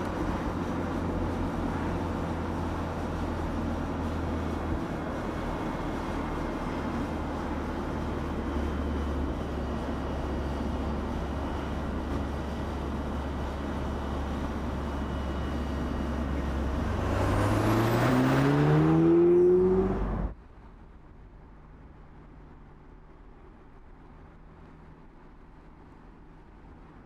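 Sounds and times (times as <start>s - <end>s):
road and wind noise: 0.0s - 27.0s
car engine accelerating: 15.6s - 20.4s.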